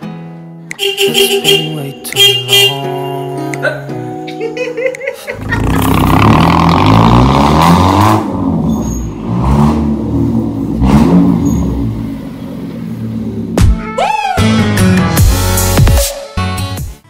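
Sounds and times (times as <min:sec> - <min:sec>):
car engine revving: 0:05.4 - 0:13.7.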